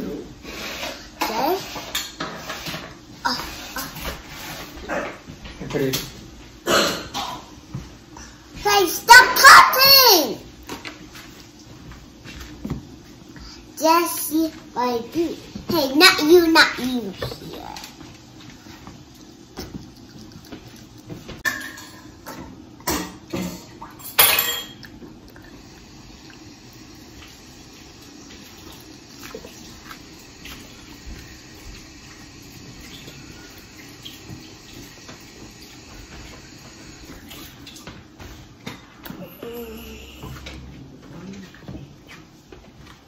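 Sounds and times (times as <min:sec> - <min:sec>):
dishes and cutlery clattering: 0:21.4 - 0:24.9.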